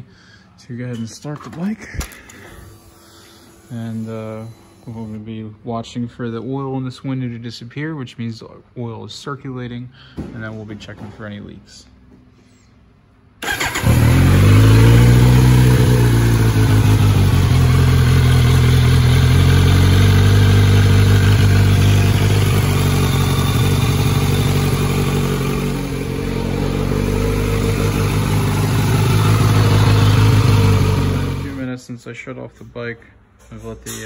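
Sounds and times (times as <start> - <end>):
motorcycle engine idling: 13.4 - 31.6.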